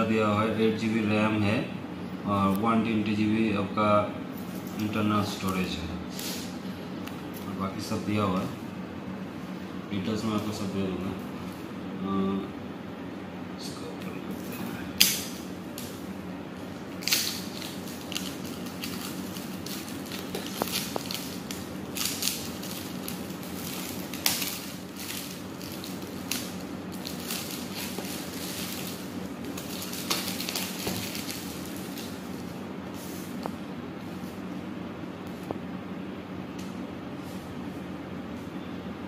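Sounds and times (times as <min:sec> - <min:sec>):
plastic wrap crinkling: 0:16.8 - 0:33.6.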